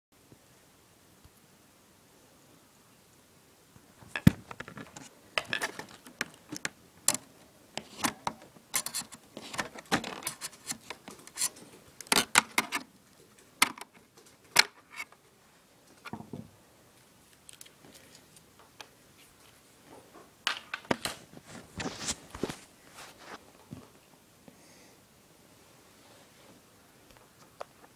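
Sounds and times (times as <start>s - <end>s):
plastic laptop casing clicks and knocks: 4.1s - 11.4s, 12.0s - 12.8s, 13.6s - 15.1s.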